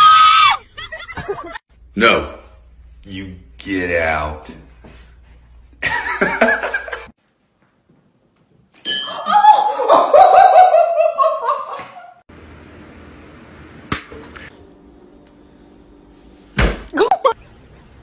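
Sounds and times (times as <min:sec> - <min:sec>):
person laughing loudly: 0:05.8 - 0:07.1, 0:09.2 - 0:12.2, 0:17.0 - 0:17.4.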